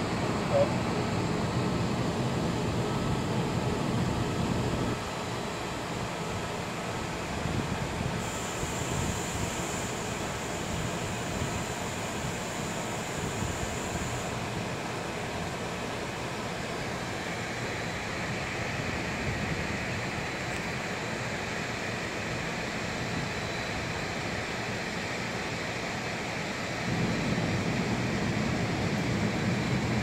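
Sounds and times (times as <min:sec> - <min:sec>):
steady background hiss: 0:00.0 - 0:30.0.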